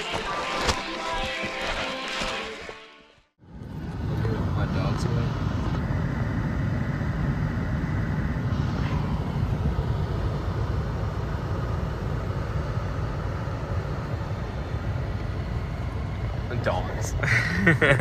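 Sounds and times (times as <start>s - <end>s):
car engine and tyre rumble: 3.4s - 17.9s.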